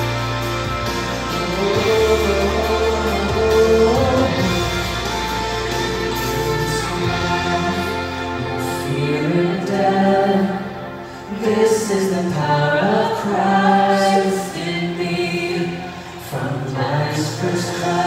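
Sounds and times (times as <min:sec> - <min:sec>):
group singing worship song: 0:00.0 - 0:18.0
singers breathing: 0:10.9 - 0:11.4, 0:15.8 - 0:16.4.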